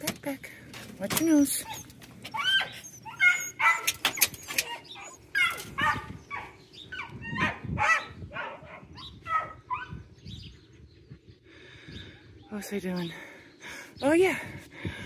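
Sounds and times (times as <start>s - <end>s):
dog whining and yipping: 1.5s - 10.0s.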